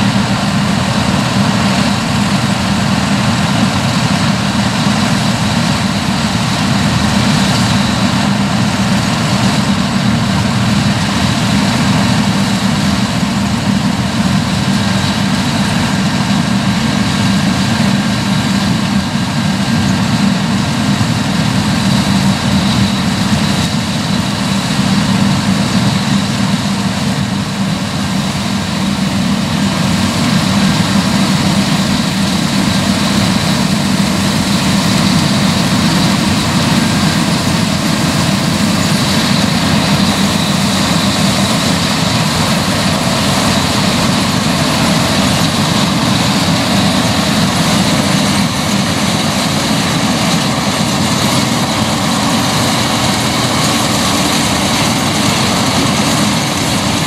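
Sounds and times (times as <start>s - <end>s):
combine harvester engine drone: 0.0s - 57.0s.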